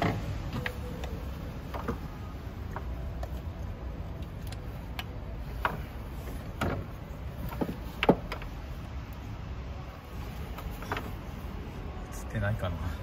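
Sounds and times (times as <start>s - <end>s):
ignition coil clicks and knocks: 0.0s - 8.6s.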